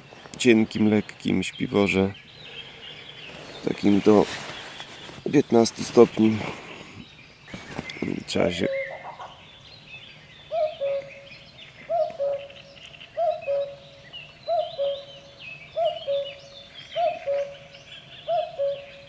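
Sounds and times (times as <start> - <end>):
songbirds chirping faintly: 0.0 - 19.0
cuckoo calling: 5.9 - 9.5, 10.4 - 19.0.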